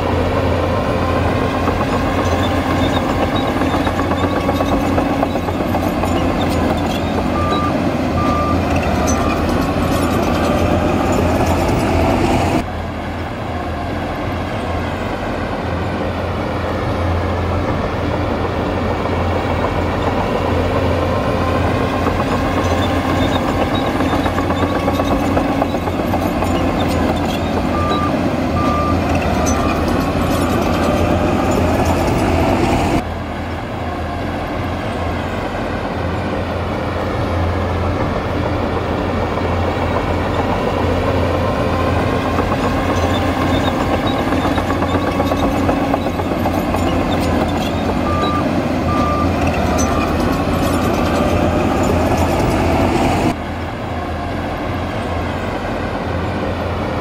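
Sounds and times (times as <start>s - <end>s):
heavy diesel machinery engine: 0.0s - 57.0s
reversing alarm beeps: 7.3s - 9.5s, 27.7s - 29.9s, 46.8s - 50.2s.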